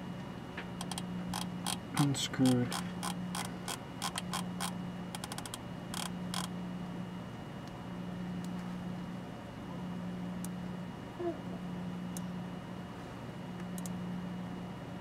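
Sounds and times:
small sharp clicks: 0:00.8 - 0:06.5, 0:13.6 - 0:14.0.

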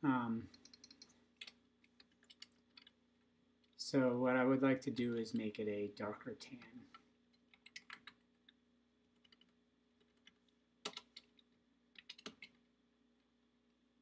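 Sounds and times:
computer keyboard typing: 0:00.5 - 0:03.0, 0:07.5 - 0:08.2, 0:09.2 - 0:12.6.

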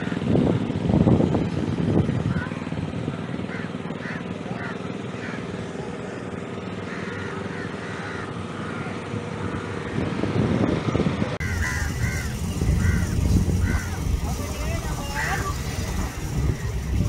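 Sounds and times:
birds cawing: 0:00.0 - 0:00.3, 0:03.2 - 0:10.2, 0:11.4 - 0:17.0
idling vehicle engine hum: 0:00.0 - 0:17.0
low rumble: 0:11.4 - 0:17.0.

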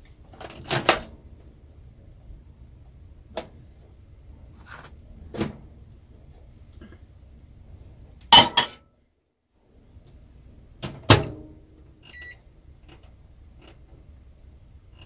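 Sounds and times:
microwave keypad beeps: 0:12.1 - 0:12.4.

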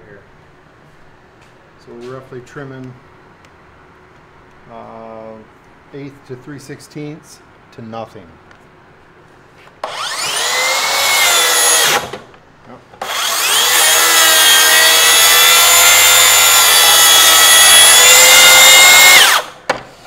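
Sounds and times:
cordless saw cutting wood: 0:09.8 - 0:12.3, 0:13.0 - 0:19.6.

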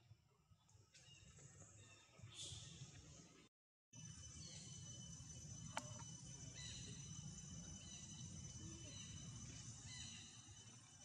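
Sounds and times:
insect drone: 0:04.0 - 0:11.0.

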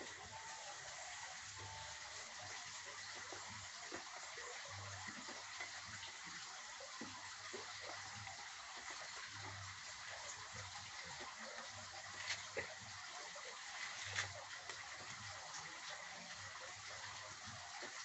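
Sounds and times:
fish sizzling on coals: 0:00.0 - 0:18.0
embers crackling and popping: 0:11.2 - 0:15.3.

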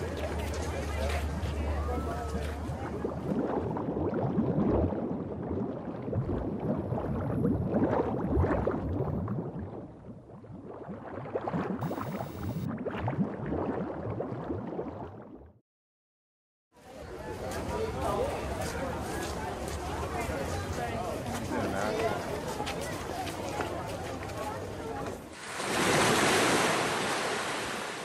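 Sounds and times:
water bubbling and gurgling: 0:02.7 - 0:15.6.

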